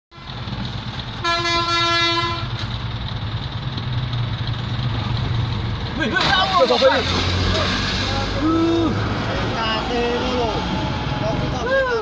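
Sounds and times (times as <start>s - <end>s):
low engine rumble: 0.1s - 12.0s
train horn: 1.2s - 2.5s.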